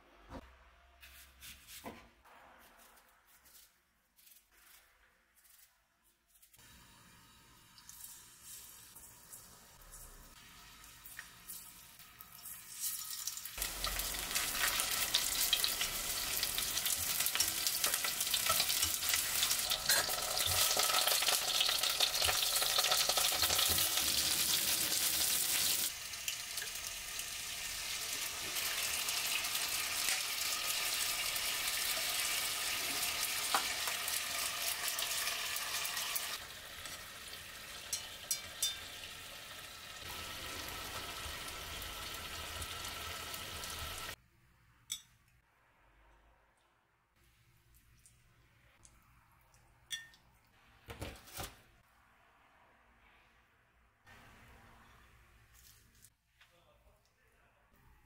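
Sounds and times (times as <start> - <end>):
food sizzling in hot oil: 6.9 - 44.2.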